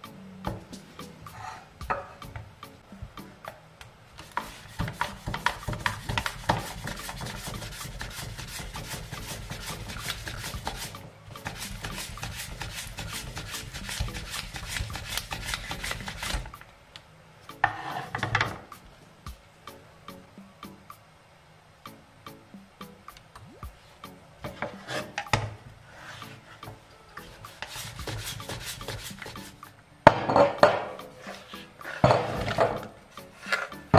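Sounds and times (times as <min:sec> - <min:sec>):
potato slicing on mandoline: 0:04.2 - 0:16.6, 0:27.2 - 0:29.6, 0:31.0 - 0:33.9.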